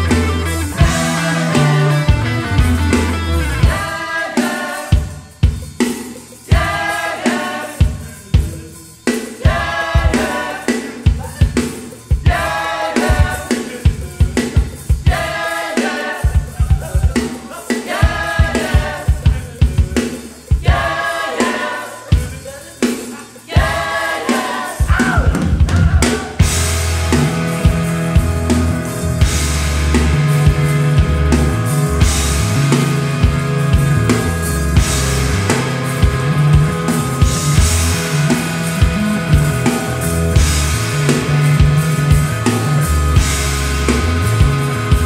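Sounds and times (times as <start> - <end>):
low bass part: 0.0 - 3.8, 26.4 - 45.0
melodic lead line: 0.0 - 4.0, 26.4 - 45.0.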